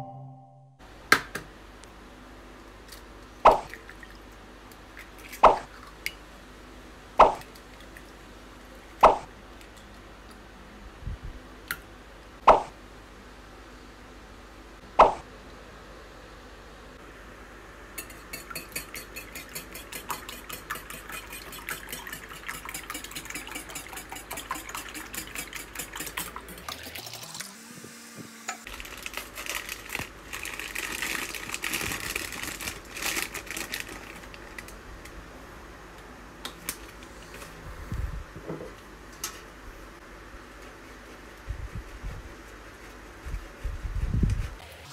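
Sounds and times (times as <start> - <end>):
wire whisk beating in glass bowl: 18.0 - 26.6
paper wrapping crinkling: 28.7 - 34.8.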